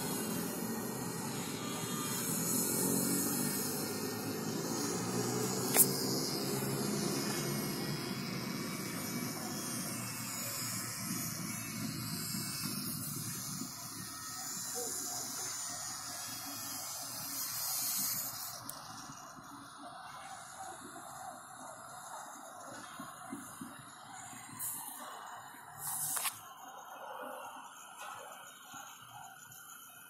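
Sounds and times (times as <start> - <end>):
sharp click: 5.7 - 6.0.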